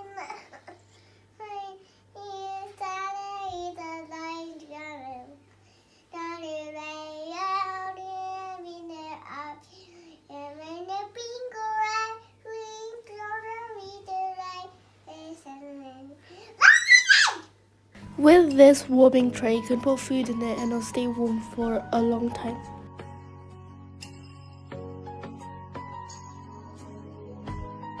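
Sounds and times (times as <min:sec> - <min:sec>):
girl singing unaccompanied: 0:01.4 - 0:05.4, 0:06.1 - 0:16.2, 0:18.0 - 0:22.8.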